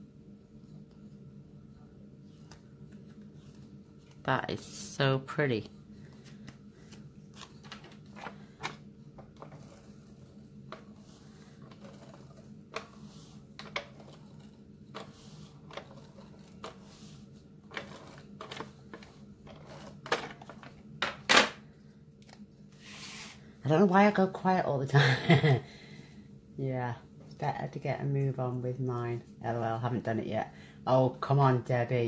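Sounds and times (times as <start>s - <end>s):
low steady hum: 0.0s - 32.0s
paper rustling: 6.0s - 20.6s.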